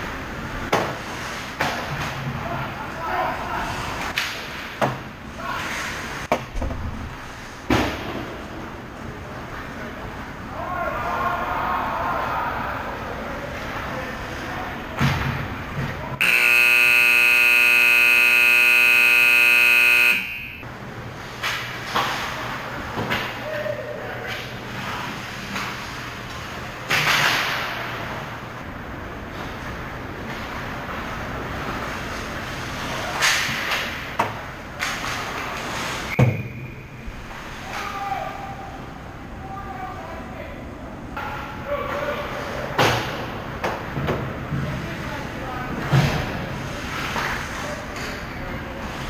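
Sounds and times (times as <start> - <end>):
loud steady horn blast: 16.2 - 20.6
short ringing tone: 16.2 - 20.6.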